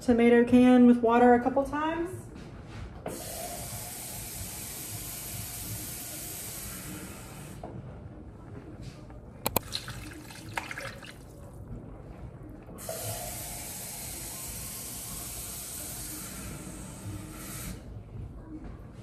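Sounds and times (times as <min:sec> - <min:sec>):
tap water running into tin can: 0:09.5 - 0:11.4.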